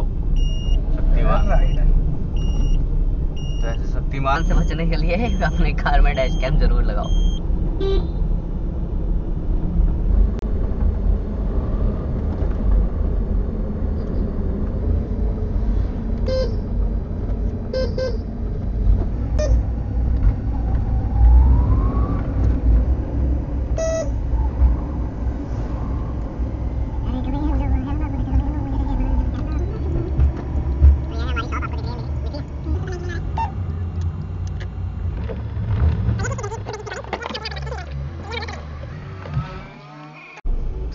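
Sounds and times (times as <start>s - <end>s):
rising whine: 0.0s - 36.3s
car road and engine rumble: 0.0s - 40.9s
car horn toots: 7.8s - 8.2s, 16.2s - 16.7s, 17.7s - 18.3s, 23.8s - 24.2s.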